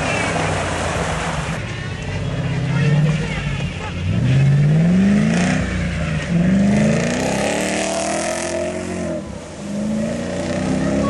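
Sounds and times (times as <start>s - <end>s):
wheels splashing through water: 0.0s - 11.0s
engine revving hard: 4.1s - 11.0s.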